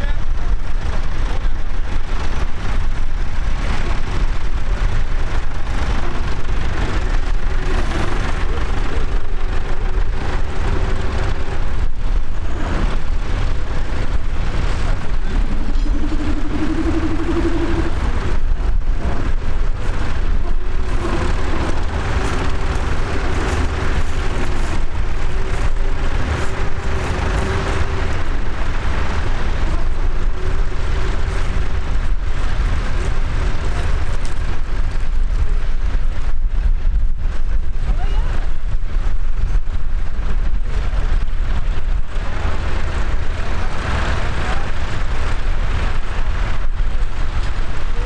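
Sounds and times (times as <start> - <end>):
tractor engine running: 0.0 - 48.0
faint whine: 5.9 - 35.5.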